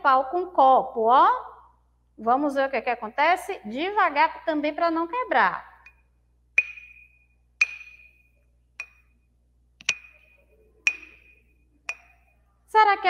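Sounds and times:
spoon clinking glass: 6.6 - 9.2, 9.8 - 12.3.

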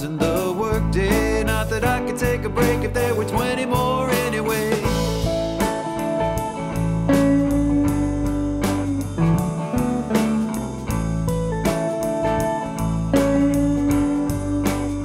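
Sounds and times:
band song with guitar: 0.0 - 15.0
steady drum beat: 0.0 - 15.0.

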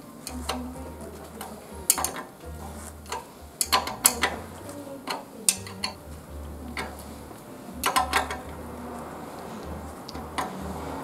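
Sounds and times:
wrench clicking on metal bolt: 3.1 - 4.4, 5.1 - 6.0.

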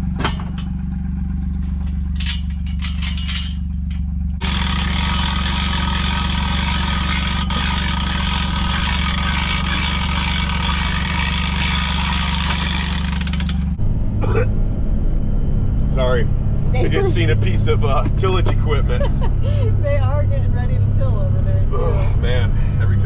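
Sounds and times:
utility vehicle idling: 0.0 - 11.2, 15.6 - 23.0.

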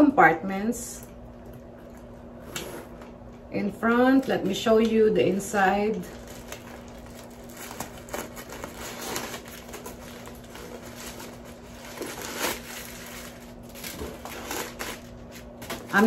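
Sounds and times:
faint steady hum: 0.0 - 16.0
tissue paper rustling: 6.1 - 16.0.

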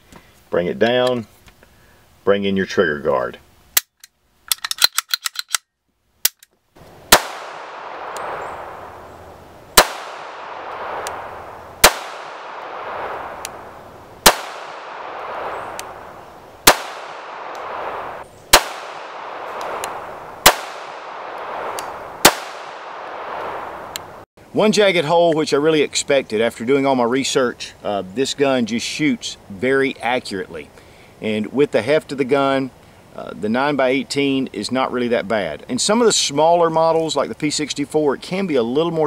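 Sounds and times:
pistol slide locking open: 3.8 - 5.6
small metallic clicks: 3.8 - 6.6
pistol shots: 7.1 - 9.0, 9.7 - 23.9.

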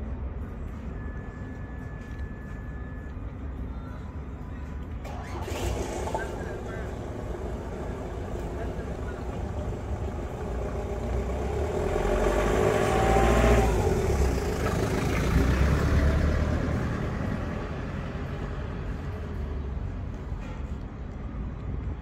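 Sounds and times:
traffic background hum: 0.0 - 22.0
vehicle passing: 5.0 - 20.1.

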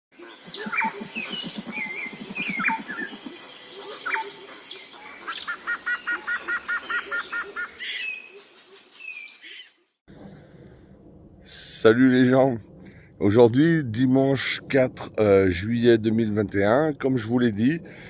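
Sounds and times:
songbirds chirping and whistling: 0.2 - 9.8
low rapid pulsing: 0.6 - 3.8, 10.1 - 18.0.

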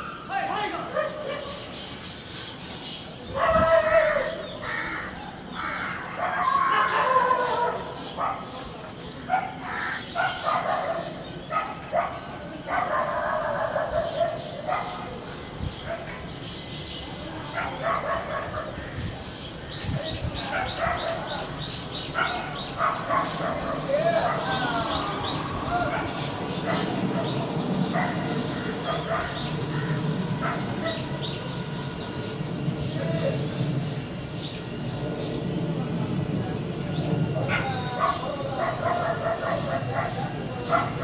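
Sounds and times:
crow cawing: 3.9 - 7.6, 9.6 - 10.2.

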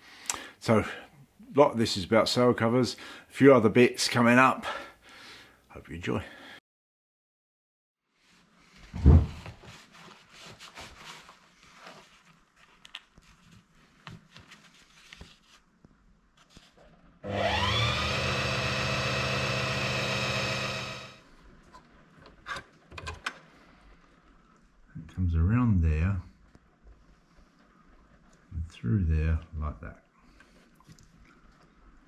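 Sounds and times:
sail cloth rustling: 8.2 - 16.8
sharp thump: 9.0 - 9.4
sewing machine motor whining: 17.2 - 21.2.

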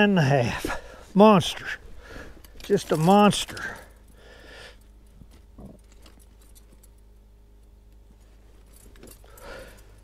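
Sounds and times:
low hum: 0.0 - 10.0.

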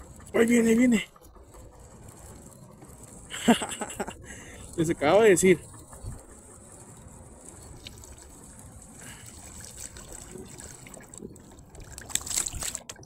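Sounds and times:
water splashing and trickling: 6.8 - 13.0.

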